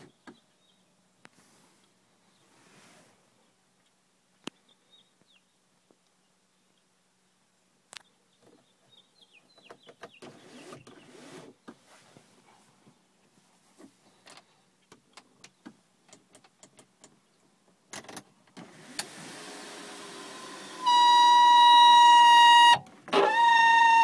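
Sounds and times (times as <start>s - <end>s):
sunroof motor whining: 18.6s - 24.0s.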